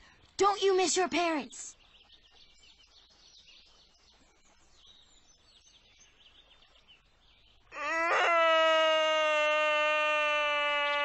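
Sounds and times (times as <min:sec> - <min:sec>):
faint bird chirps: 0:00.0 - 0:07.7
person wailing: 0:07.8 - 0:11.0.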